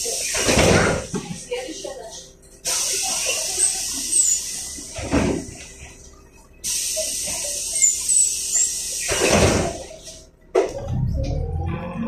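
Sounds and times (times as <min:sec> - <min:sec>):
bus cabin high hiss: 0:00.0 - 0:01.6, 0:02.6 - 0:06.0, 0:06.6 - 0:10.3.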